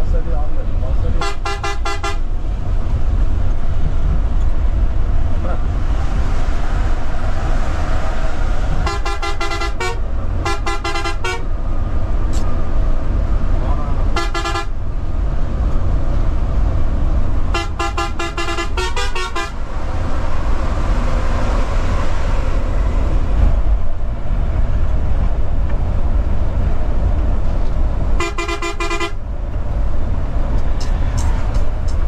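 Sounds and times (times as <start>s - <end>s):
engine and road rumble: 0.0s - 32.0s
vehicle horn rapid beeps: 1.2s - 2.2s, 8.9s - 11.4s, 14.2s - 14.7s, 17.6s - 19.6s, 28.2s - 29.2s.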